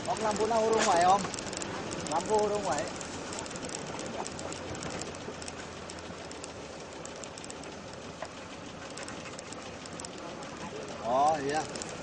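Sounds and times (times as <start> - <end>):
tyre and road noise: 0.0 - 12.0
vehicle engine hum: 0.0 - 12.0.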